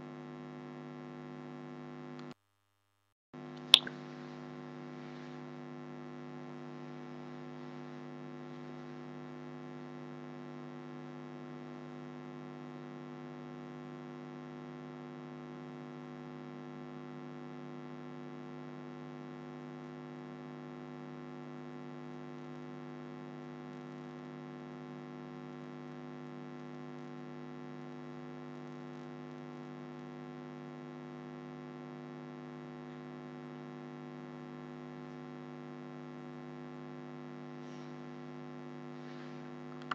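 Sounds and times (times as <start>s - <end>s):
electrical mains hum: 37.4s - 39.9s.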